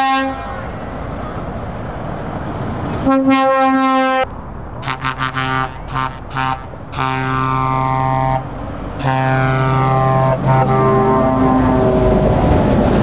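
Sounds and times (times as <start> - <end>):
truck air horn blasts: 0.0 - 0.8, 3.0 - 12.3
passing truck noise: 0.0 - 13.0.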